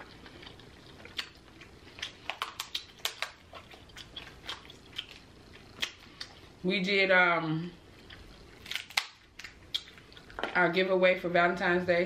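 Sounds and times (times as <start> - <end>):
chewing: 0.0 - 6.6, 7.9 - 10.4
shell cracking: 8.6 - 9.9.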